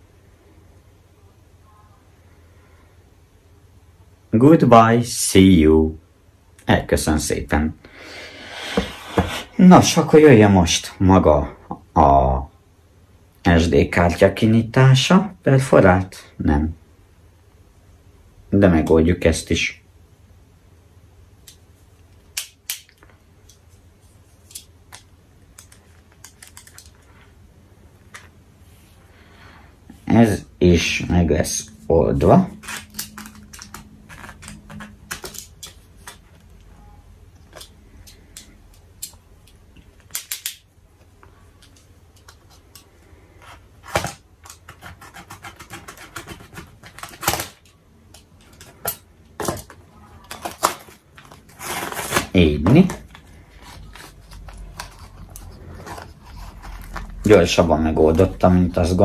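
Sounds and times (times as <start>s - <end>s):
plastic packaging clicking and crackling: 24.5s - 27.1s, 32.6s - 36.7s, 45.7s - 57.4s.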